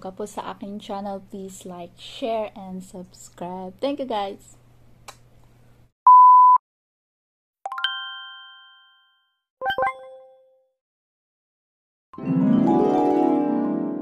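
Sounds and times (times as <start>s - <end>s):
bell-like chime: 7.8s - 9.4s.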